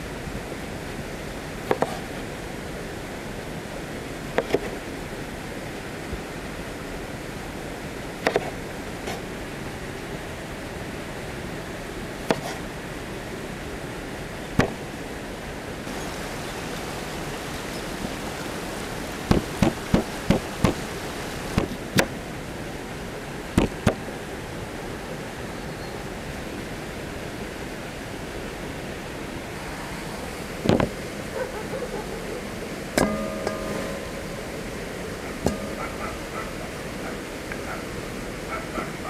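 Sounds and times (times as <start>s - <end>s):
steady cooking hiss: 15.8s - 25.2s.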